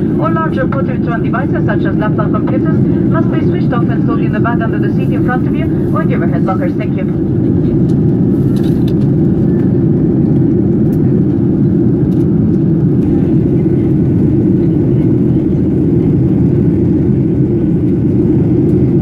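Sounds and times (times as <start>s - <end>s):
airplane cabin engine rush: 0.0s - 19.0s.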